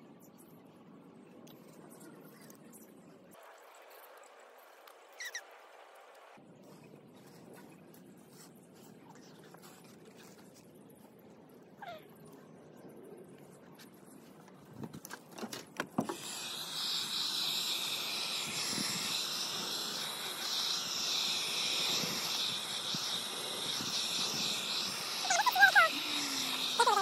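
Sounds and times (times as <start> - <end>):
heat gun blowing hiss: 16.0 - 27.0.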